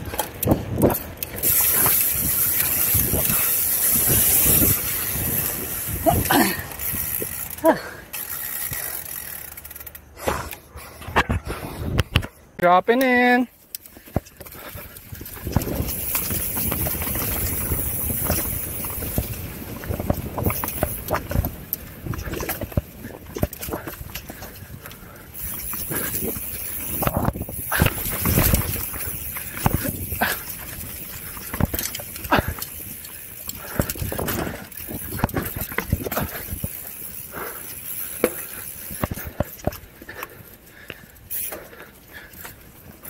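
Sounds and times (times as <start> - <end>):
wind on microphone: 0.0 - 7.3, 14.8 - 24.9, 25.8 - 33.0
bike tyres rumbling over dirt: 0.0 - 12.4, 13.9 - 43.0
bike knocking and rattling: 0.0 - 43.0
rushing air: 0.4 - 7.4
tyres hissing on dirt: 36.2 - 39.0.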